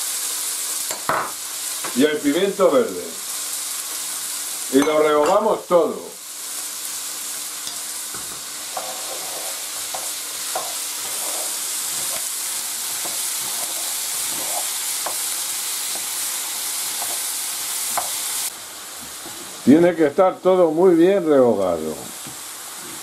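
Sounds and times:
vegetables sizzling in oil: 0.0 - 23.0
wooden spoon scraping pan: 8.7 - 15.2.

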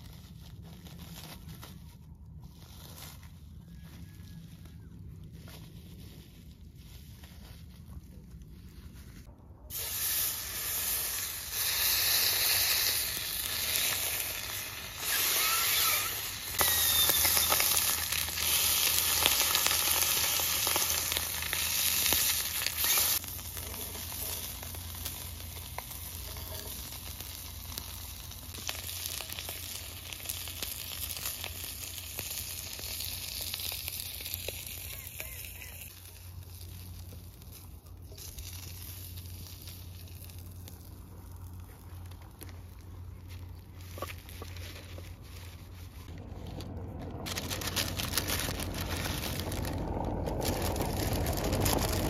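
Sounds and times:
meat sizzling on a grill pan: 9.7 - 37.1.

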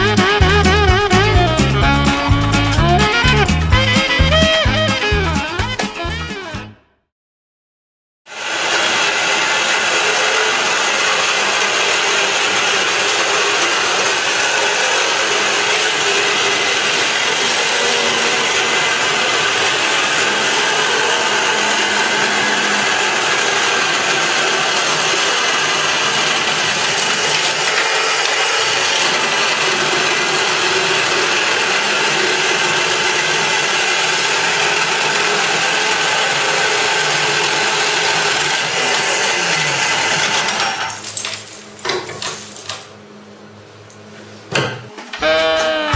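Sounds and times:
wall chaser milling masonry: 8.3 - 43.1.

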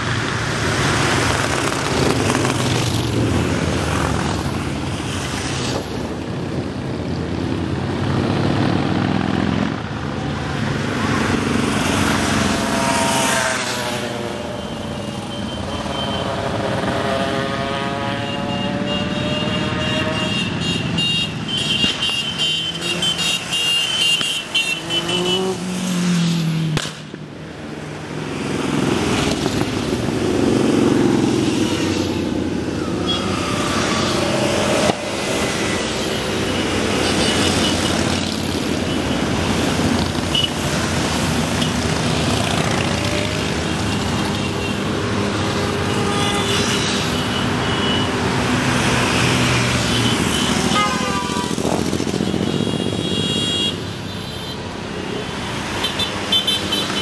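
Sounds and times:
motorcycles riding past: 0.0 - 26.9, 27.8 - 54.0
engine revving: 16.2 - 20.2.

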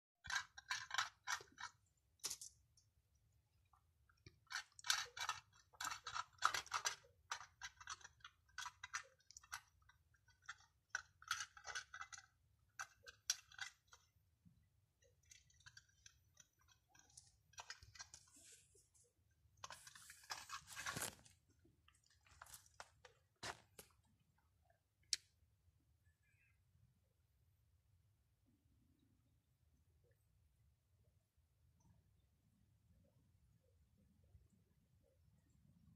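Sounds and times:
rustling: 15.1 - 24.2.

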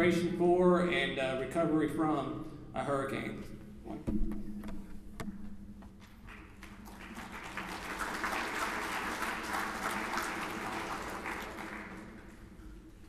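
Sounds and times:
audience applauding: 6.0 - 12.8.

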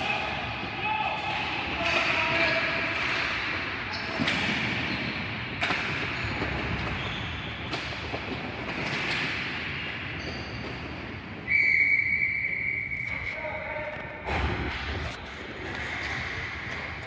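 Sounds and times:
referee's whistle blast: 11.5 - 13.4.

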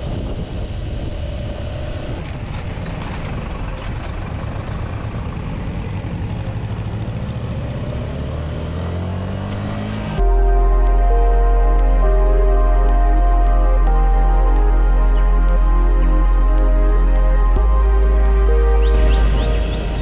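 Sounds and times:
motorcycle engine cruising: 0.0 - 20.0
wind and road noise: 0.0 - 20.0.

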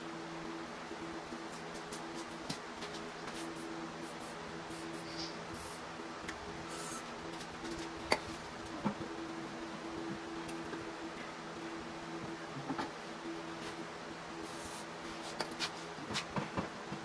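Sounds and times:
steady low hum: 0.0 - 17.0
aerosol spray hissing: 3.3 - 5.8, 6.6 - 7.1, 14.4 - 15.3.

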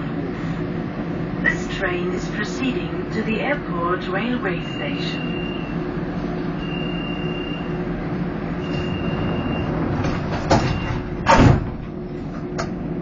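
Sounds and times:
monorail car running hum: 0.0 - 13.0
high beeps: 4.6 - 5.7, 6.6 - 7.8, 8.6 - 9.7
heavy thump: 10.1 - 11.9.

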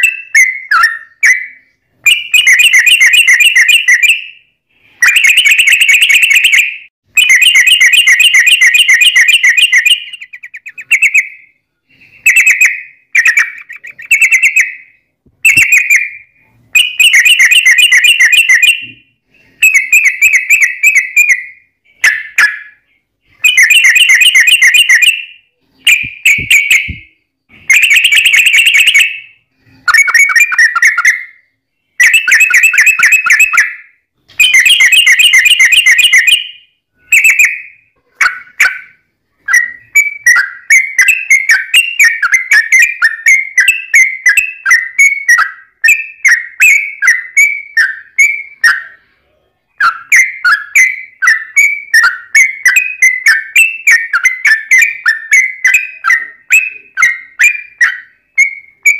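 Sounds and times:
bird song: 0.0 - 58.9.

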